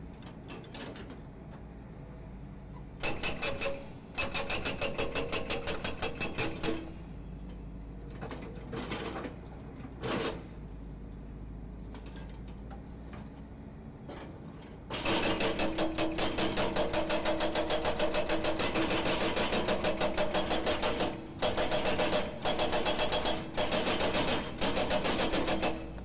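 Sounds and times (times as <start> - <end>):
hydraulic breaker hammer pounding concrete: 3.0 - 6.9, 14.9 - 26.0.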